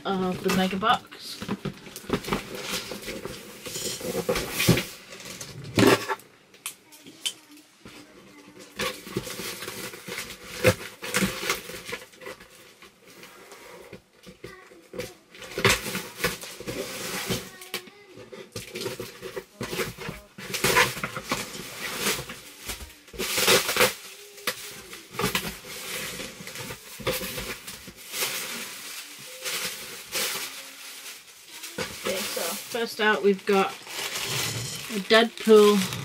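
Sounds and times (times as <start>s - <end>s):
plastic and cardboard rustling: 0.0s - 6.2s, 6.9s - 36.0s.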